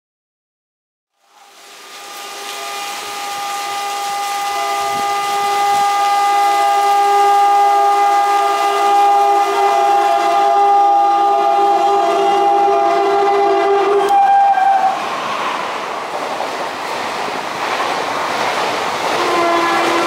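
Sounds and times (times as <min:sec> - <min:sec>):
heavy rain hiss: 0:01.2 - 0:14.0, 0:14.7 - 0:20.0
train air horn blast: 0:01.4 - 0:15.0, 0:19.1 - 0:20.0.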